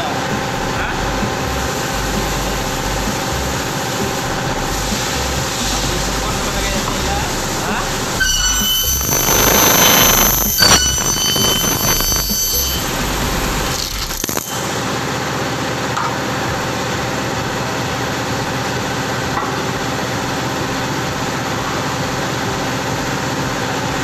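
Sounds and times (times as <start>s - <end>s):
circular saw running: 0.0s - 15.9s.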